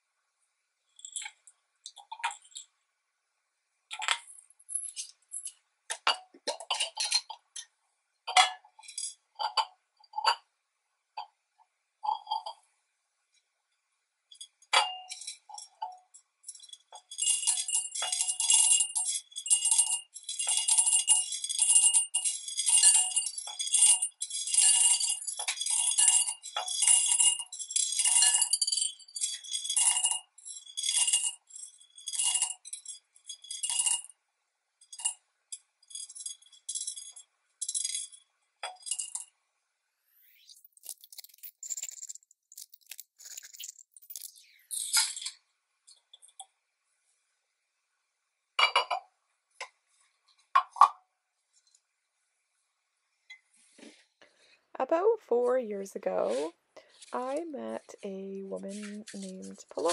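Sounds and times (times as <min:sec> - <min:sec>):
beads clattering into glass jar: 0:01.0 - 0:02.7, 0:03.9 - 0:07.3, 0:08.3 - 0:09.6, 0:14.3 - 0:15.8, 0:16.4 - 0:34.1, 0:34.8 - 0:39.3, 0:40.2 - 0:45.4, 0:58.6 - 0:59.9.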